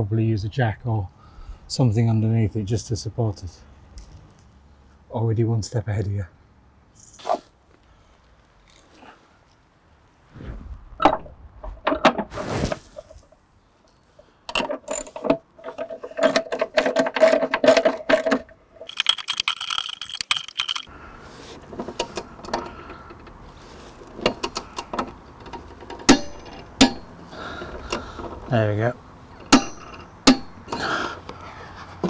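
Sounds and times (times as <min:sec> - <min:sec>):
metal tools clinking: 0:13.9 - 0:20.9, 0:24.2 - 0:28.5, 0:29.3 - 0:30.9.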